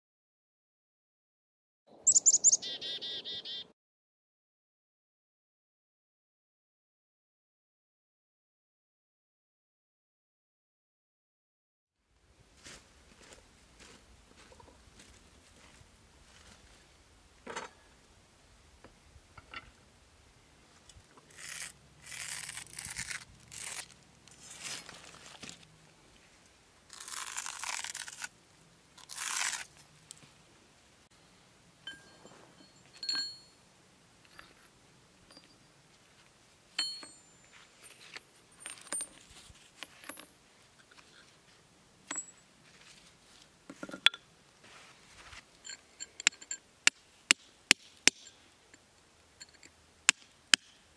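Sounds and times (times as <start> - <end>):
scraping crunching noises: 20.7 - 28.4, 29.0 - 30.5
metal tools clinking on stone: 31.9 - 33.6, 35.3 - 35.7, 36.8 - 40.3, 42.1 - 42.5, 45.6 - 46.7, 49.4 - 49.8.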